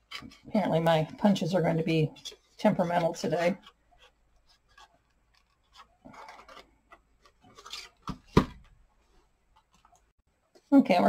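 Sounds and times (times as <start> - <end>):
paper rustling and scraping: 2.2 - 8.2.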